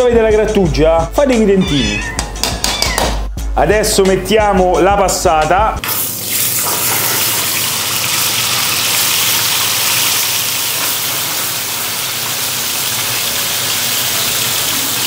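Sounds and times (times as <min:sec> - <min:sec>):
sauce sizzling in a frying pan: 0:05.8 - 0:15.0.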